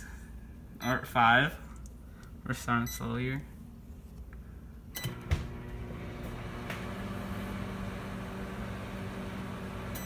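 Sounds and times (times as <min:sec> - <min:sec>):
microwave oven humming: 0:04.7 - 0:10.0
microwave oven clicks and knock: 0:05.0 - 0:05.8.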